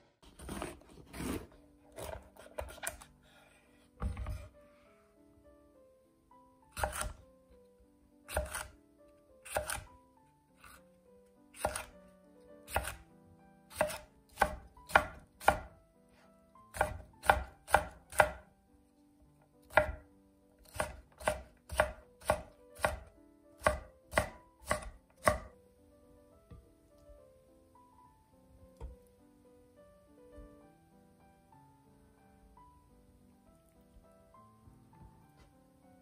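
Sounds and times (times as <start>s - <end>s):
knife chopping on wooden board: 0.3s - 3.1s, 4.0s - 4.5s, 6.8s - 7.2s, 8.3s - 8.7s, 9.5s - 9.9s, 11.6s - 11.9s, 12.7s - 13.0s, 13.7s - 15.7s, 16.7s - 18.4s, 19.7s - 20.0s, 20.6s - 25.5s.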